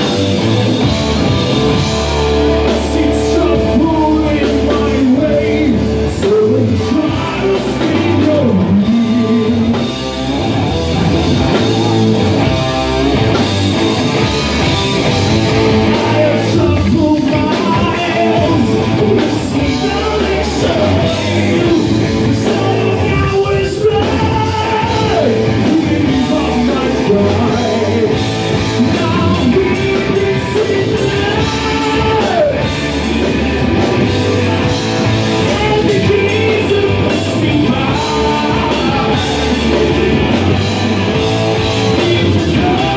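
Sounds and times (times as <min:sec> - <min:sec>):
live rock band playing: 0:00.0 - 0:42.9
male singer: 0:02.6 - 0:10.1, 0:15.5 - 0:34.5, 0:35.3 - 0:42.9.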